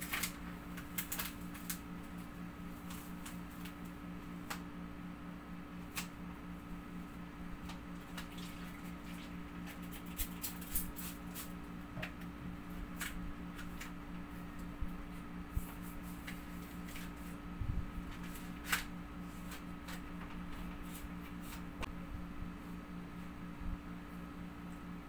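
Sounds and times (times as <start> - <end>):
window film crinkling and tapping: 0.0 - 4.6
steady low hum: 0.0 - 25.0.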